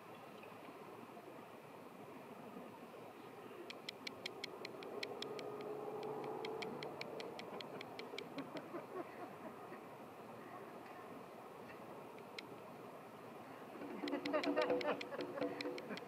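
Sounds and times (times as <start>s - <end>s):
rapid sharp high ticks: 3.7s - 8.6s, 12.2s - 12.5s, 14.0s - 16.0s.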